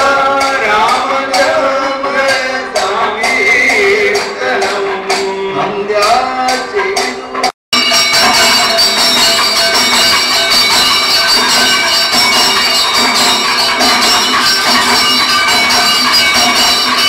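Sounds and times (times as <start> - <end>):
drums struck rapidly: 0.0 - 17.0
hand cymbals clashing: 0.0 - 17.0.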